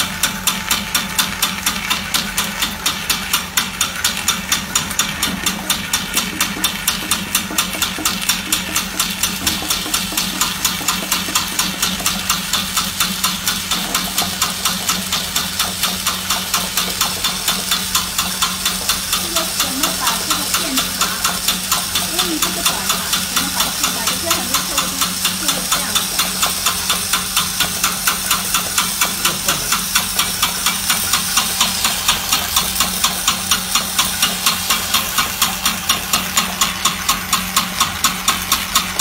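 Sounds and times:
electric motor hum: 0.0s - 39.0s
pulsing machine beat: 0.0s - 39.0s
steam hissing: 5.3s - 39.0s.

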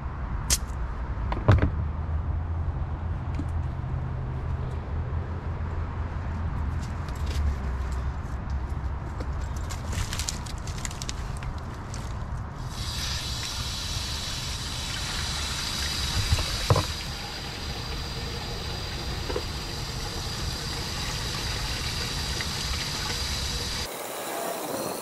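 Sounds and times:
water running into a pipe: 12.7s - 24.2s.

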